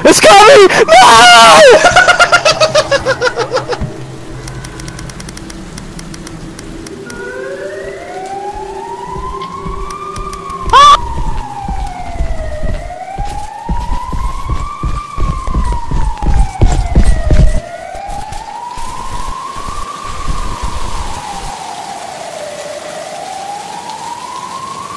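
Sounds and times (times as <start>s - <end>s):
siren wailing: 0.5s - 24.9s
loud low thumps: 9.1s - 17.7s.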